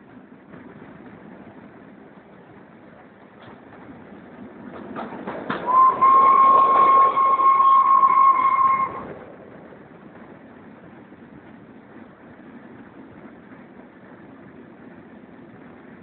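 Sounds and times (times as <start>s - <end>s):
train running noise: 0.0s - 16.0s
steam locomotive whistle: 5.6s - 9.2s.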